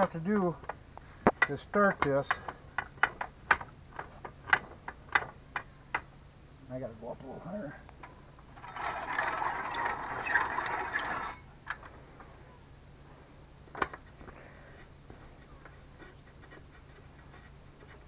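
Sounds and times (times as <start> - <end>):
crickets chirping: 0.0 - 18.0
metal rattling on drilling rig: 8.4 - 12.0.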